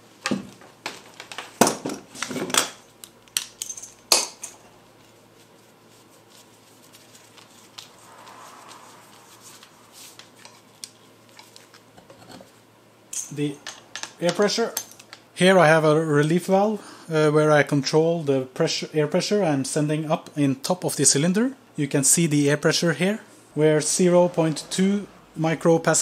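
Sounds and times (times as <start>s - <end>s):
tools knocking and clinking: 13.2s - 15.2s.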